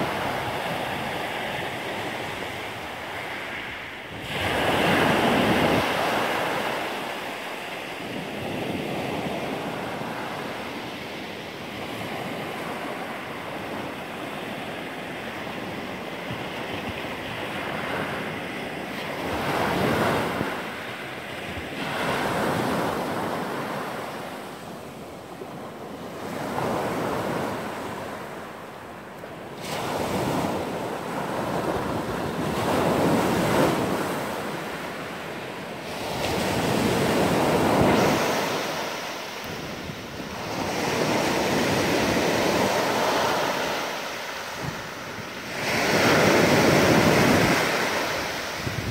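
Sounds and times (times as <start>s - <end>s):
surf breaking on pebble beach: 35.9s - 48.9s.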